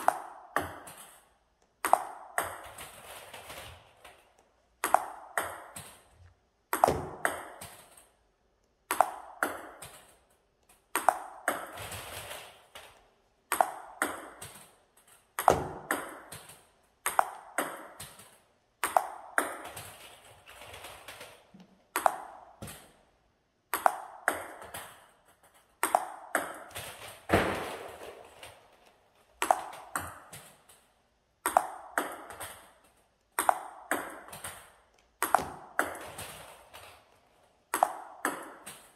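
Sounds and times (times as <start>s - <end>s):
table tennis ball clicking: 0.0s - 2.9s, 4.8s - 8.2s, 8.9s - 11.8s, 12.6s - 20.0s, 20.8s - 22.9s, 23.7s - 26.8s, 29.4s - 36.6s, 37.7s - 38.9s.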